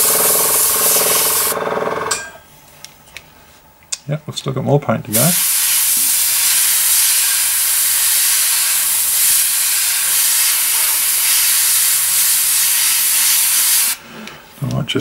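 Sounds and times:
airbrush spraying hiss: 0.0 - 1.6, 5.2 - 14.0.

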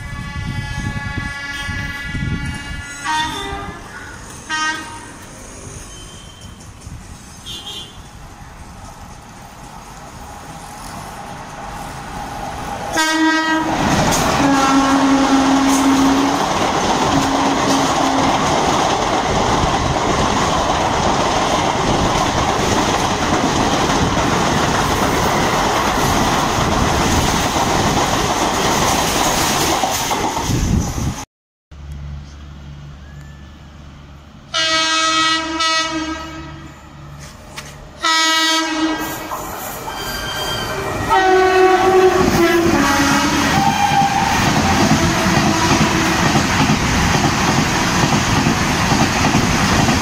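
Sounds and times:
locomotive horn: 0.0 - 5.3, 7.4 - 8.1, 12.9 - 16.5, 17.2 - 18.5, 34.5 - 36.8, 38.0 - 46.2
train approaching with low hum: 0.0 - 31.2, 31.8 - 50.0
train wheels on rail: 0.0 - 31.2, 31.8 - 50.0.

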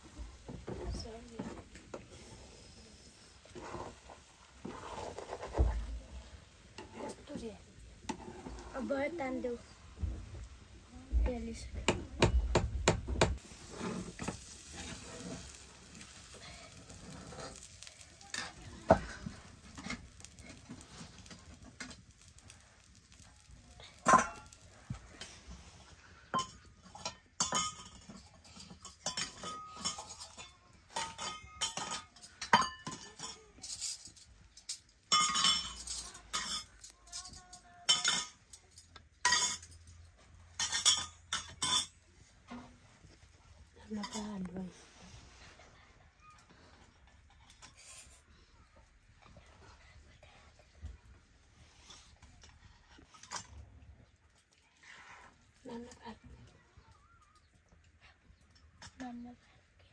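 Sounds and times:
metal spatula scraping steel pan: 1.5 - 5.9, 6.7 - 7.4, 13.4 - 22.3
steel bowls and spoons clinking: 13.4 - 25.4, 26.2 - 42.7, 43.9 - 44.5.

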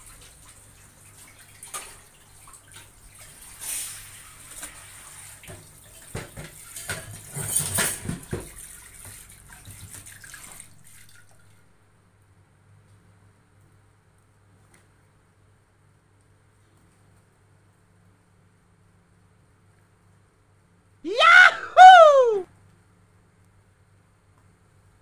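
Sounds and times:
water splashing and trickling: 0.0 - 11.8.

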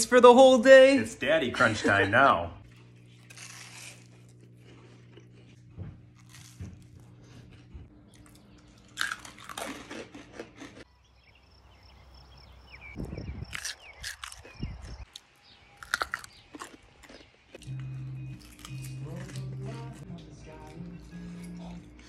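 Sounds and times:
crunchy chewing: 2.6 - 10.9, 13.4 - 22.0
low hum: 17.5 - 22.0.

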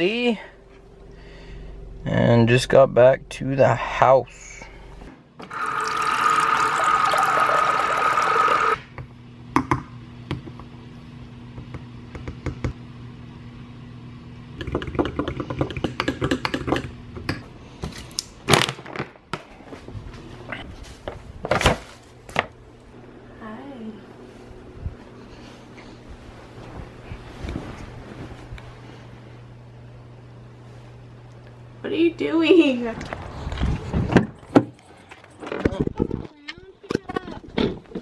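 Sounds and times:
liquid pouring: 5.5 - 8.8.

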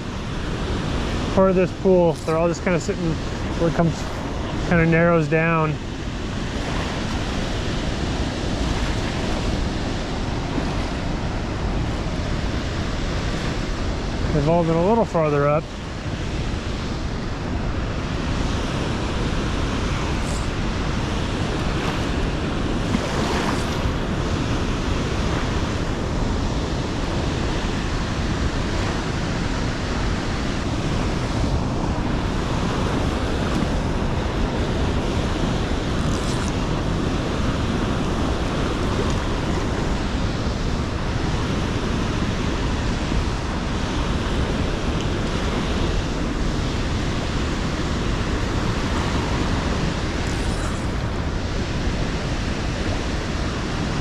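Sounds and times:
river rushing: 0.0 - 54.0.

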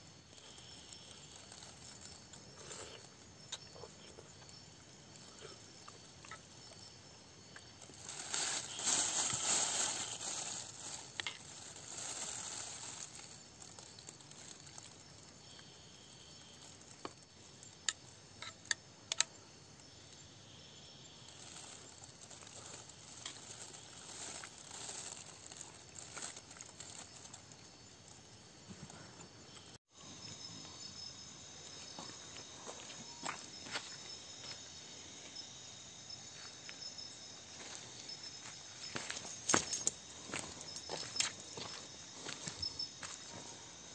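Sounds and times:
food packaging crinkling: 0.4 - 3.1, 7.6 - 15.2, 21.3 - 27.6.

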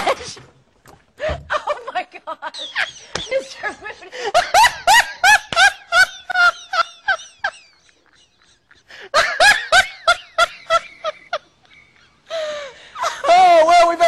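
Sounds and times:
person laughing hard: 3.8 - 13.4.

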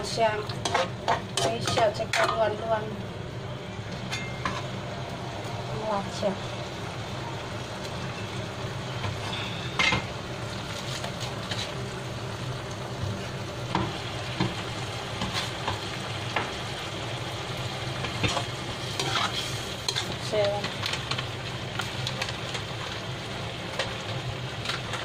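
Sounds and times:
food sizzling: 0.0 - 25.0
ladle scraping a wok: 0.5 - 2.4, 18.2 - 21.2.

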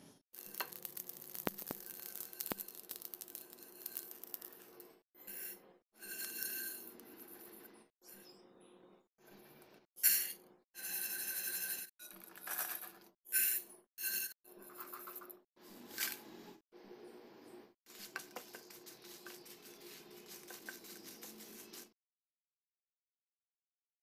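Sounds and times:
dry lentils rattling into a pan: 0.4 - 4.8, 12.1 - 12.9, 17.9 - 21.9
wooden spatula stirring: 17.9 - 21.9.

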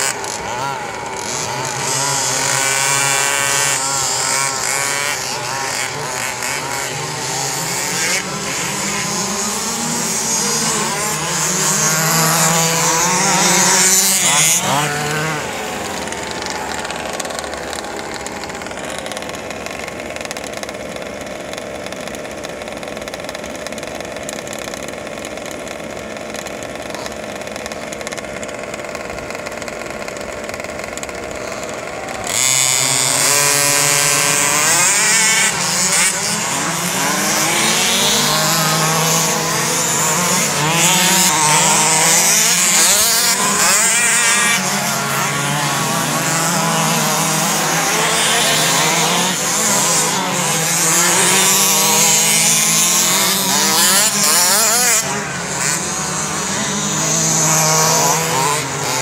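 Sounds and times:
radio-controlled cars whining: 0.0 - 59.0.

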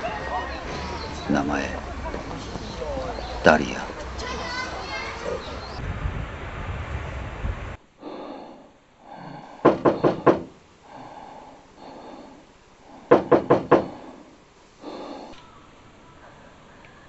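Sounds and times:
knocking on a door: 9.6 - 10.6, 13.1 - 14.0.

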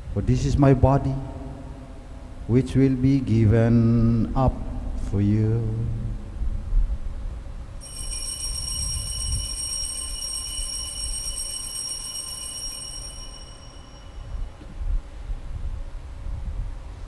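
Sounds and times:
altar bell ringing: 7.8 - 14.8.

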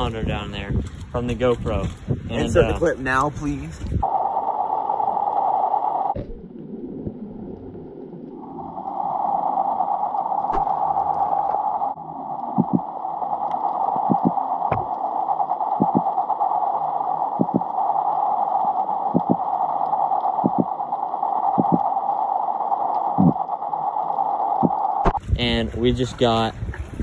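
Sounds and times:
muffled underwater hiss: 8.4 - 25.2.

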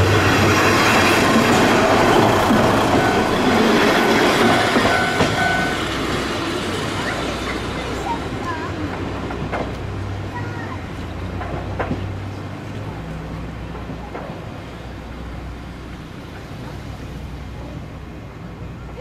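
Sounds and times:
train wheels clattering over rails: 0.0 - 12.8
diesel railcar engine running: 0.0 - 19.0.

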